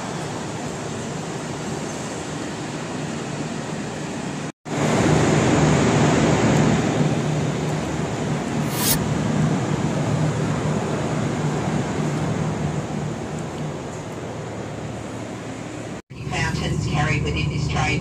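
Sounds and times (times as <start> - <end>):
brief hiss: 8.6 - 9.0
diesel railcar idling: 13.8 - 18.0.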